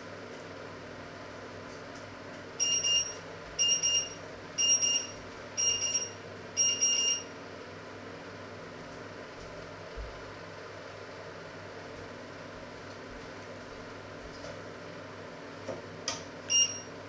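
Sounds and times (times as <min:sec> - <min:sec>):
kitchen timer alarm beeping: 0:02.6 - 0:07.3, 0:16.5 - 0:17.0.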